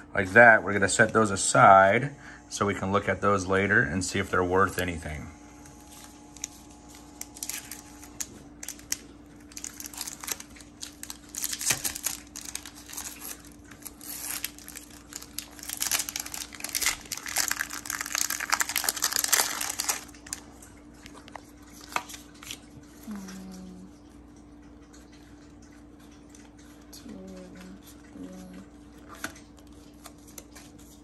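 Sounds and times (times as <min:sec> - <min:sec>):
foil wrapper crinkling and tearing: 0:05.7 - 0:20.5, 0:21.7 - 0:22.7.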